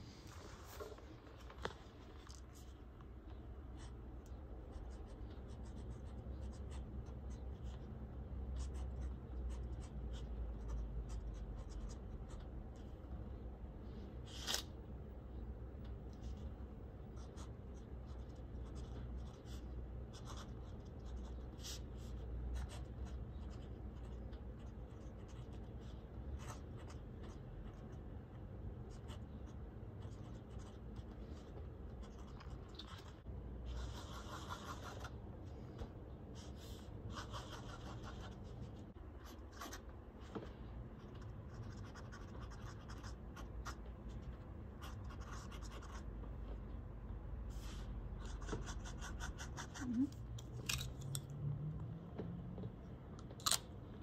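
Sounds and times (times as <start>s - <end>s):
pen nib scratching paper: 17.1s - 28.0s, 28.9s - 35.2s, 36.4s - 39.8s, 41.0s - 46.1s, 47.6s - 50.2s.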